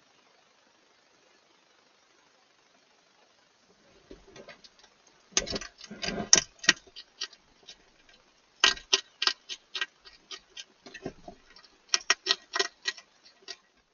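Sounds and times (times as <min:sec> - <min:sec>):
hedgehog crunching dry food: 0:03.8 - 0:13.9.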